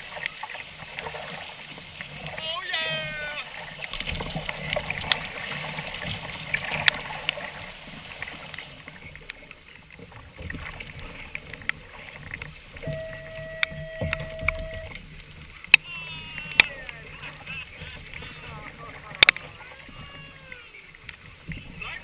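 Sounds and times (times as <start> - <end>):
water slapping against hulls: 0.0 - 22.0
gear knocking on a boat: 11.8 - 15.0
steady tone: 12.8 - 15.0.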